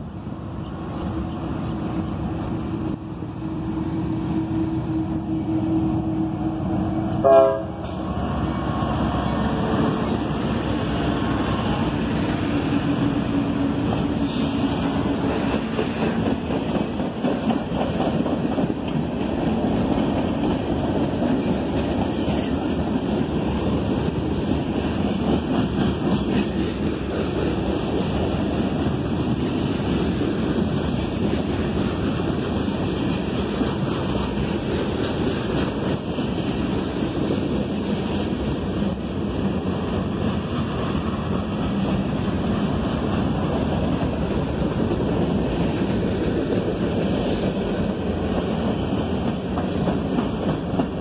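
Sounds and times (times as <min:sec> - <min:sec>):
diesel locomotives running: 0:00.0 - 0:51.0
freight cars rolling on rails: 0:00.1 - 0:51.0
train horn blast: 0:04.2 - 0:08.0.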